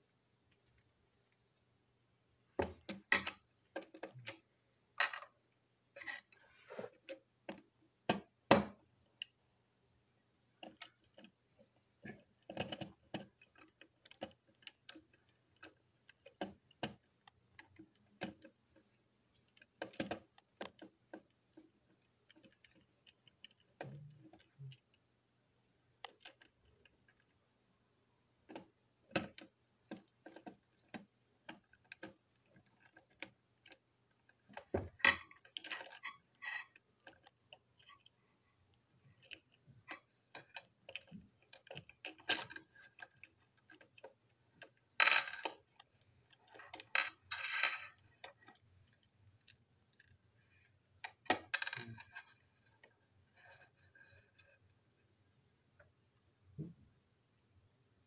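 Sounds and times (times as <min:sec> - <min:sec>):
plastic parts clicking: 0:12.0 - 0:25.0, 0:26.0 - 0:27.3, 0:28.5 - 0:38.2, 0:39.1 - 0:50.2.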